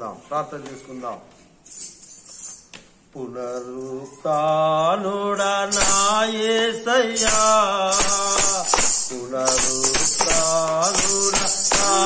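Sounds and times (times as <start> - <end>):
tambourine jingling: 1.6 - 2.7, 4.7 - 12.0
man singing a hymn: 3.2 - 12.0.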